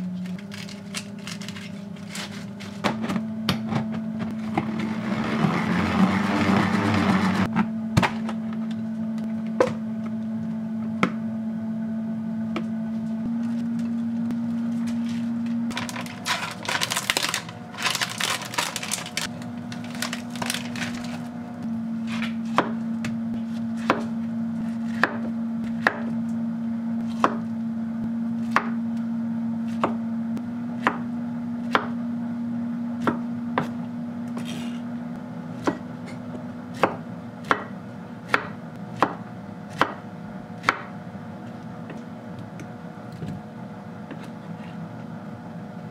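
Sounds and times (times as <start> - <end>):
salad spinner whirring: 4.4 - 7.5
plastic tub crinkling: 15.7 - 21.2
knife chopping on wooden board: 22.2 - 26.1, 27.0 - 27.4, 35.6 - 37.7, 38.3 - 40.0, 40.6 - 40.9.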